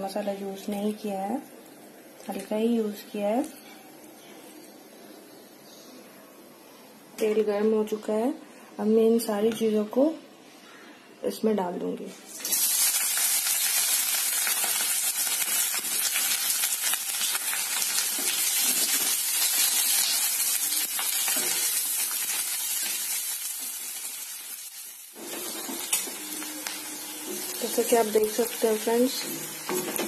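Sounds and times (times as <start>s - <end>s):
onions and spices sizzling in oil: 0.0s - 3.6s, 12.2s - 30.0s.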